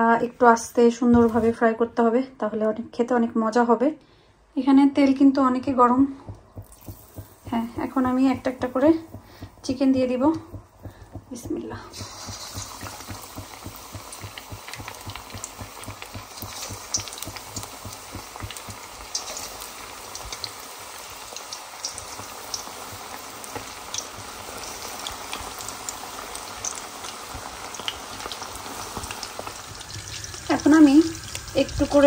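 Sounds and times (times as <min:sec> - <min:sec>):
oil popping and crackling: 0:06.3 - 0:32.0
chicken deep-frying in oil: 0:10.8 - 0:32.0.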